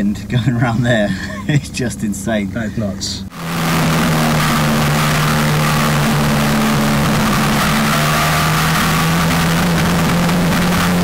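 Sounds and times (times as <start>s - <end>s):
wind and road noise: 2.3s - 11.0s
race car engine: 3.3s - 11.0s.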